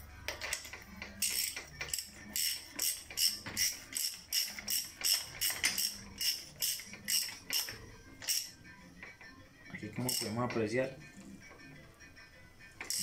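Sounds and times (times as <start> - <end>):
ratchet wrench clicking: 0.3 - 8.6, 10.0 - 10.4.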